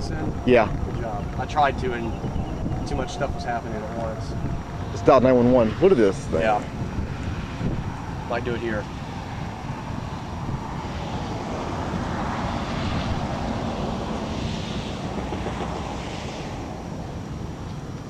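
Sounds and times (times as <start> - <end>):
broad rushing noise: 0.0 - 18.0
wind buffeting microphone: 0.0 - 18.0.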